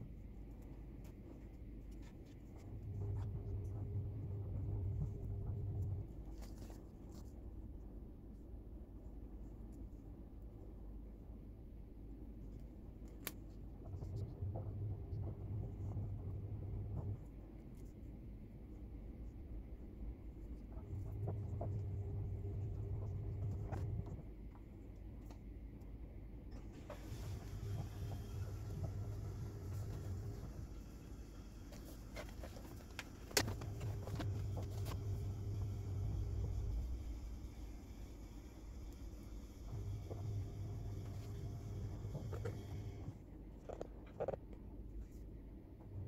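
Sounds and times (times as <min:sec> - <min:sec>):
low steady hum: 0:00.0 - 0:46.0.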